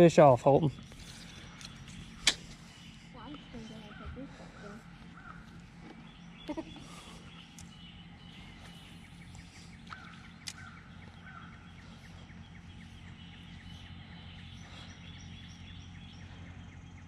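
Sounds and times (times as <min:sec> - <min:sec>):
bird calls: 0:00.0 - 0:17.0
steady low hum: 0:00.0 - 0:17.0
light clicks: 0:09.9 - 0:10.7.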